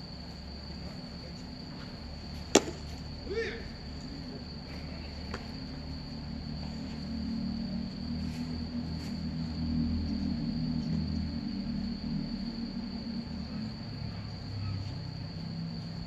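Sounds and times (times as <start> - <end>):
crickets trilling: 0.0 - 16.0
baseball smacking into glove: 2.4 - 3.0
person shouting: 3.2 - 3.8.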